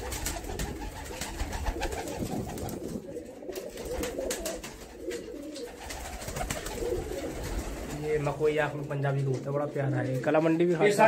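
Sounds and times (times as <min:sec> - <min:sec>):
pigeons cooing: 0:00.0 - 0:08.4.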